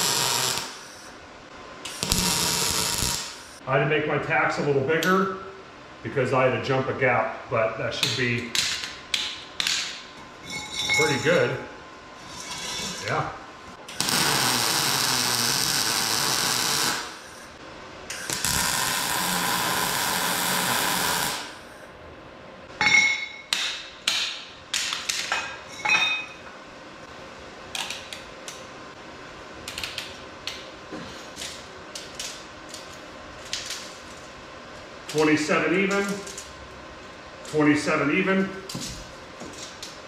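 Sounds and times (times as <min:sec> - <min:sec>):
welder crackling hiss: 0:00.0 - 0:01.2, 0:01.8 - 0:03.6, 0:13.9 - 0:21.8.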